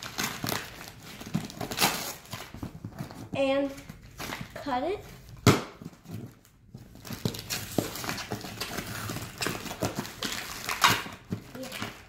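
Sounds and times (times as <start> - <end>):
packing paper rustling: 0.0 - 12.0.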